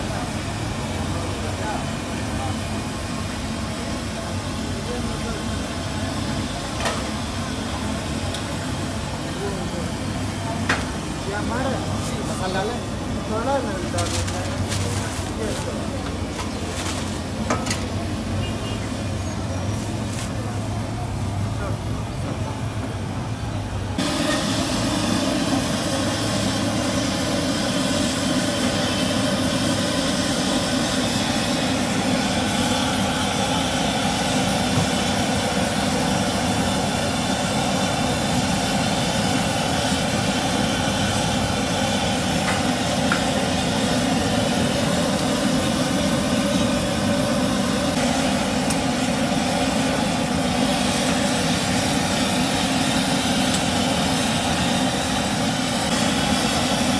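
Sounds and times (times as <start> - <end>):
gas burner roar: 0.0 - 56.9
sizzling in hot oil: 24.0 - 56.9.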